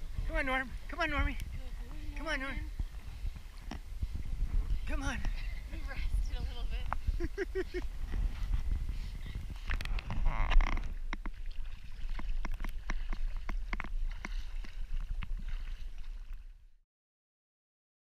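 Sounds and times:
low rumble: 0.0 - 16.7
water lapping and splashing: 0.0 - 16.8
water ticking on camera housing: 9.4 - 15.4.

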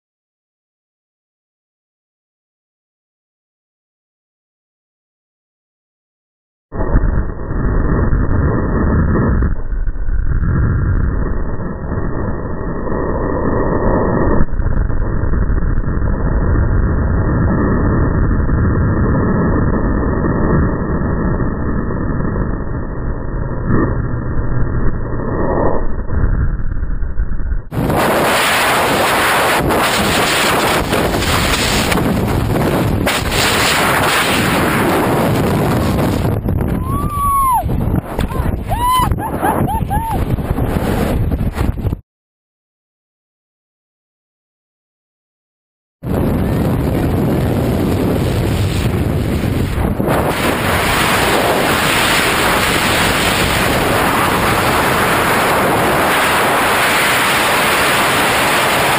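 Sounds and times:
low rumble: 6.7 - 42.0
wind buffeting microphone: 6.7 - 42.0, 46.0 - 58.9.

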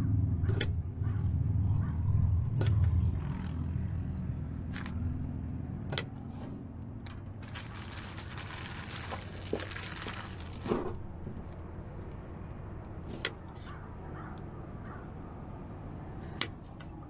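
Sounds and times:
steady low rumble: 0.0 - 17.0
plastic bag rustling: 7.4 - 11.0.

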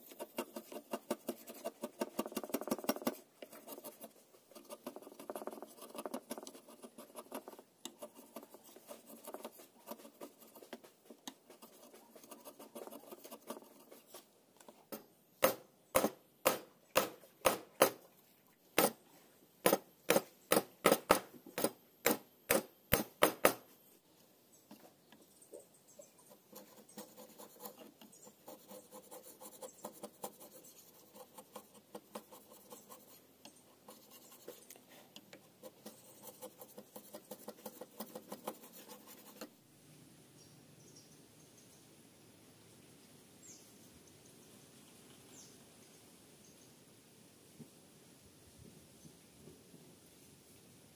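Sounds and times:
chisel scraping wood: 0.0 - 14.3
chisel struck sharp knocks: 15.4 - 18.0, 19.7 - 23.6.

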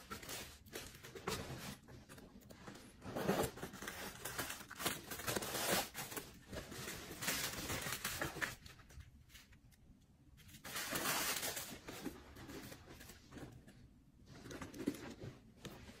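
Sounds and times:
tissue paper rustling and crinkling: 0.0 - 9.6, 10.4 - 13.6.

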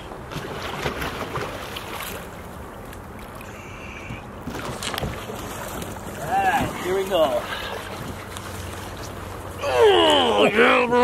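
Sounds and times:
water sloshing and splashing: 0.0 - 11.0
short sharp splashes: 0.3 - 2.4.

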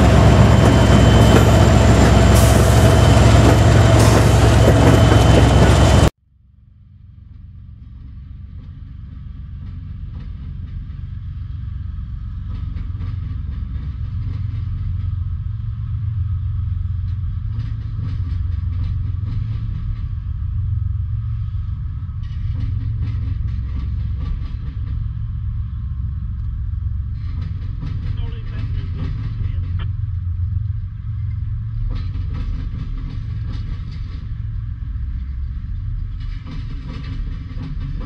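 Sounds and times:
freight train rolling past: 0.0 - 6.1, 7.0 - 38.0
train wheel clicks: 26.3 - 29.9, 36.0 - 38.0.

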